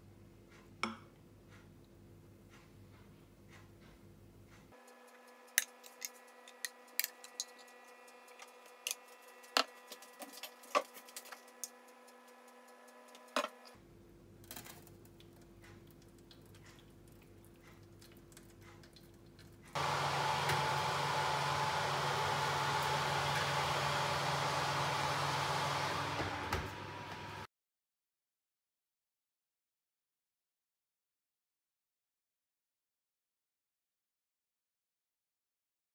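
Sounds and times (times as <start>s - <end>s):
fan oven whirring: 19.8s - 27.5s.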